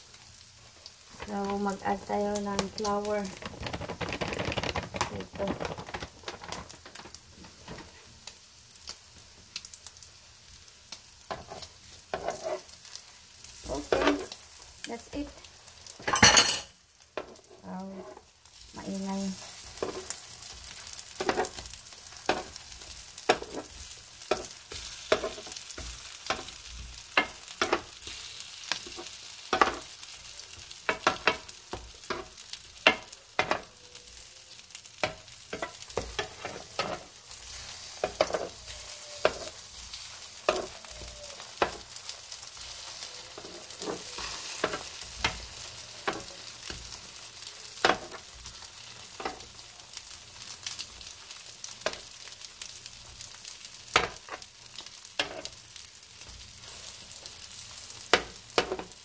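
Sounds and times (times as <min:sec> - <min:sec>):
patties sizzling in oil: 0:00.0 - 0:59.0
metal turner scraping a pan: 0:11.3 - 0:13.0, 0:13.6 - 0:14.4, 0:19.3 - 0:29.8, 0:35.0 - 0:46.9.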